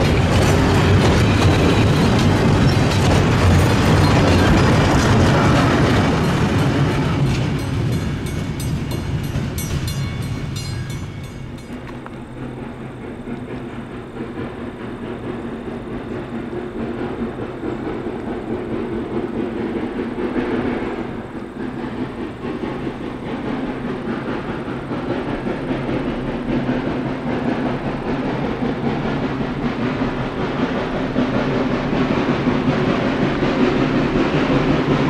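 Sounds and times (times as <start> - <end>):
train locomotive approaching: 0.0 - 35.0.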